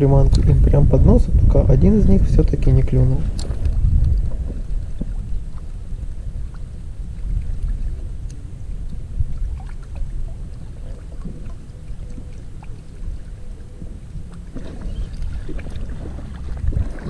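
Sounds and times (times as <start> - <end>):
wind rumbling on microphone: 0.0 - 17.0
faint ticks: 7.4 - 9.1
small splashes: 9.4 - 17.0.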